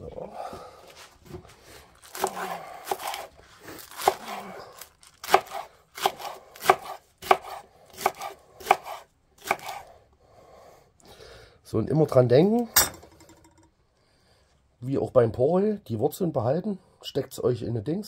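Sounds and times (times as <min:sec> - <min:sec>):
knife chopping on cutting board: 0:02.1 - 0:03.3, 0:03.9 - 0:04.4, 0:05.2 - 0:09.8.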